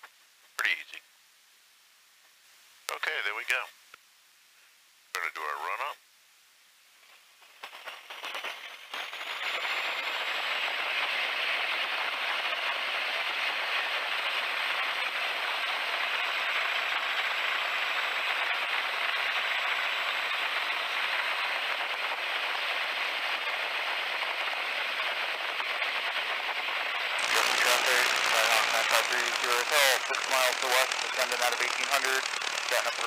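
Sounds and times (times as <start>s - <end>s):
piston aircraft engine at high power: 8.1s - 33.0s.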